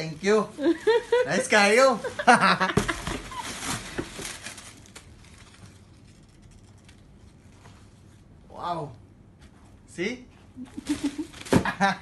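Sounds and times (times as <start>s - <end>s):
plastic packaging crinkling: 2.2s - 7.2s.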